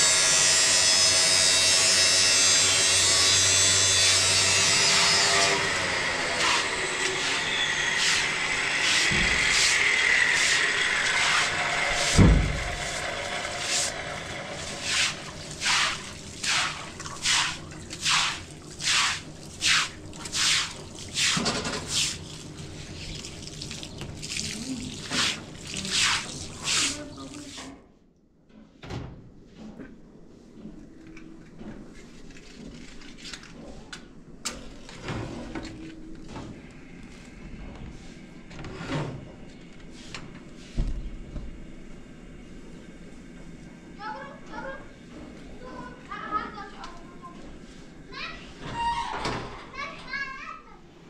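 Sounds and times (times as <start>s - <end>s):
small electric motor running: 0.0s - 15.6s
rhythmic scraping strokes: 6.4s - 18.2s
thump: 12.1s - 12.6s.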